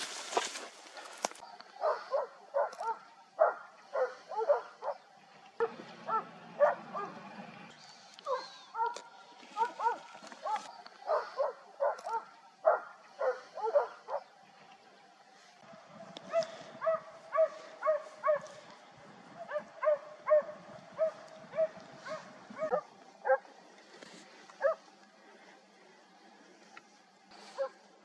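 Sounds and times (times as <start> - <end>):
dog yelping barks: 1.8 - 5.0, 6.1 - 7.2, 8.3 - 9.0, 9.6 - 14.2, 16.3 - 18.5, 19.5 - 23.4.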